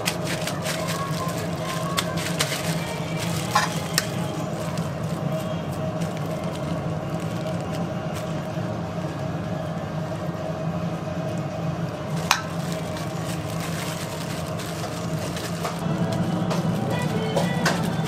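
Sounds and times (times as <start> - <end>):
low machine hum: 0.0 - 18.0.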